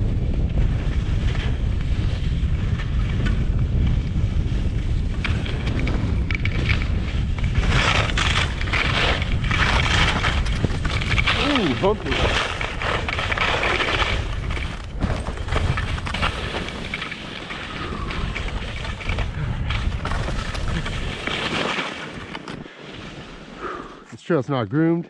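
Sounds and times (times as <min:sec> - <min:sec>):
wind buffeting microphone: 0:00.0 - 0:24.1
skis knocking on bumps: 0:00.4 - 0:22.6
skis hissing over snow: 0:07.1 - 0:14.4, 0:20.4 - 0:24.0.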